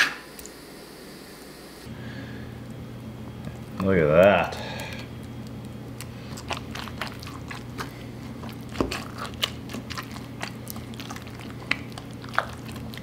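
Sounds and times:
spoon stirring thick dip: 0:03.4 - 0:13.0.

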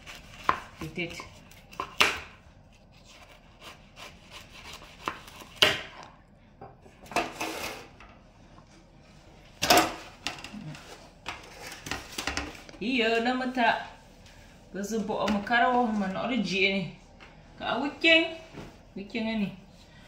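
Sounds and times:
knife scraping watermelon: 0:02.7 - 0:06.1, 0:07.3 - 0:08.0.

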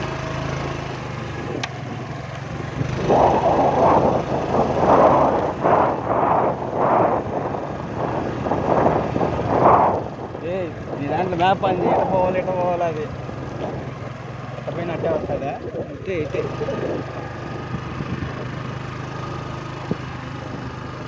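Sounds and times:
motorbike engine running: 0:00.0 - 0:21.0
loud rushing noise: 0:02.8 - 0:10.6.

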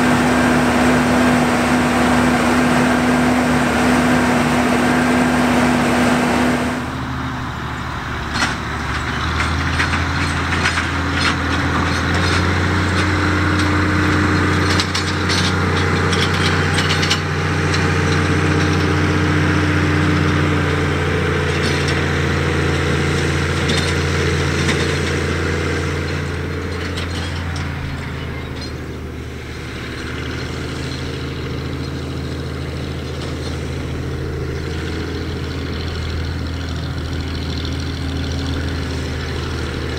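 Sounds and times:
tractor engine running: 0:00.0 - 0:39.9
clanks and rattles: 0:08.0 - 0:39.9.

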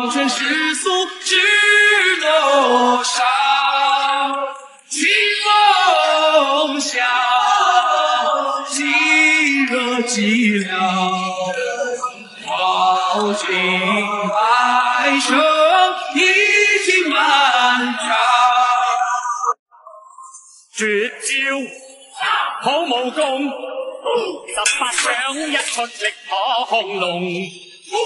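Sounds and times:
male voices chanting song: 0:00.0 - 0:19.3.

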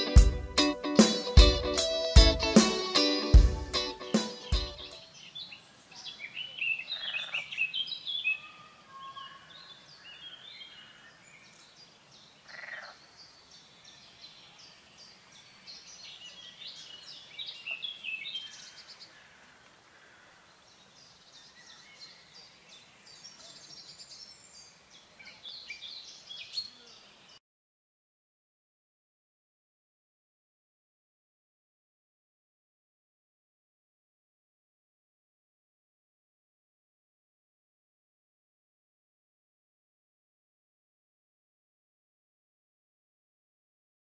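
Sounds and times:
faint outdoor hiss: 0:00.0 - 0:27.4
birds chirping and singing: 0:03.8 - 0:19.4, 0:20.0 - 0:27.3.

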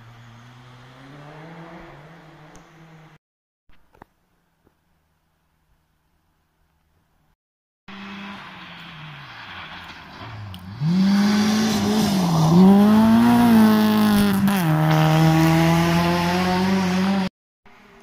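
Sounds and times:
rally car engine at high revs: 0:00.0 - 0:03.1, 0:07.9 - 0:09.2, 0:10.5 - 0:17.3.

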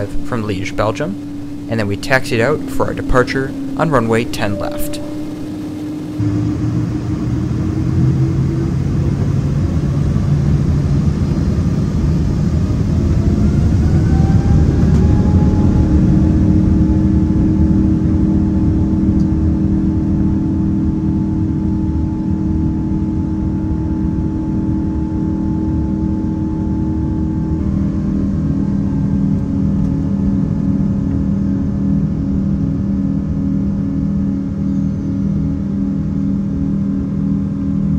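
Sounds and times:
jet engine whine rising: 0:00.0 - 0:17.4
deep jet engine drone: 0:00.0 - 0:37.9.

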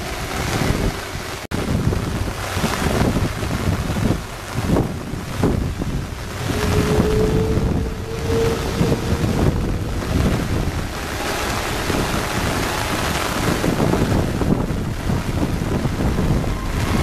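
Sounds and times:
heavy rain: 0:00.0 - 0:17.0
jet engines roaring: 0:00.0 - 0:17.0
wind buffeting microphone: 0:00.0 - 0:17.0
steady tone: 0:05.3 - 0:14.6.

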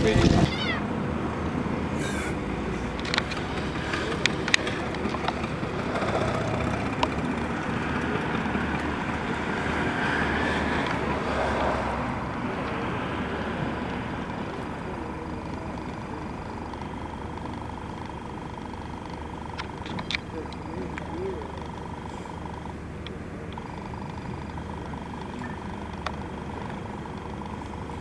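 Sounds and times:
road traffic rumble: 0:00.0 - 0:28.0
sharp clicks: 0:02.9 - 0:09.9, 0:13.9 - 0:28.0.

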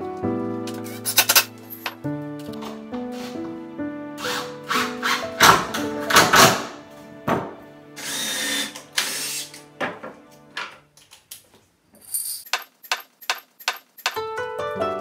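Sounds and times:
plucked-string background music: 0:00.0 - 0:11.0, 0:14.2 - 0:15.0
cordless driver driving screws: 0:08.0 - 0:09.6.

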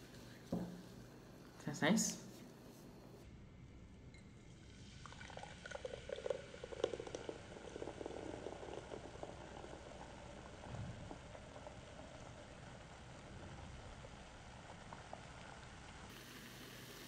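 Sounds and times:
cola pouring into a glass: 0:04.2 - 0:17.0.

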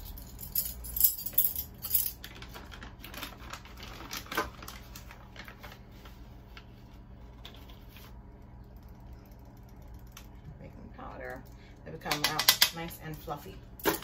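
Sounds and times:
metal measuring spoons clinking: 0:00.0 - 0:02.2.

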